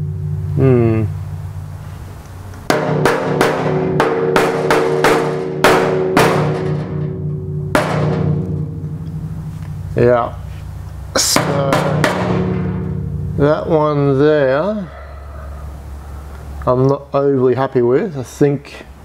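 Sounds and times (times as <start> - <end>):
mallet knocking on steel: 2.7 - 9.8, 11.3 - 13.4.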